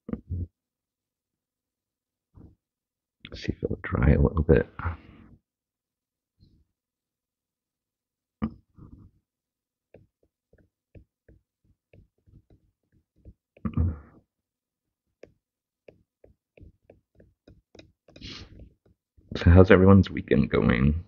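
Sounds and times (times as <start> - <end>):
towel rubbing on plastic: 18.0 - 19.5.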